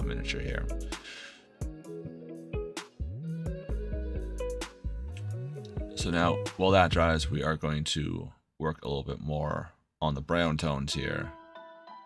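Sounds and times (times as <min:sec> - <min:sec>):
music with beat and sliding bass: 0:00.0 - 0:07.3.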